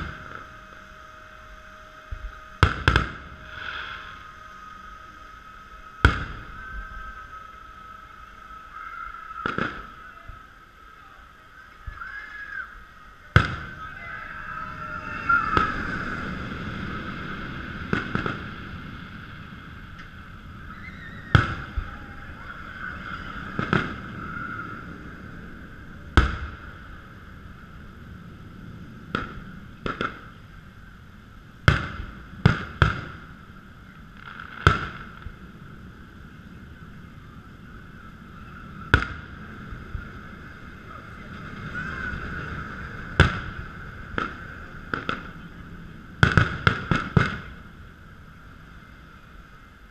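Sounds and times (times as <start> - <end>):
firework shells bursting: 2.1 - 4.2, 6.0 - 6.6, 17.8 - 18.6, 29.1 - 30.4, 34.1 - 35.4, 43.1 - 45.4, 46.2 - 47.7.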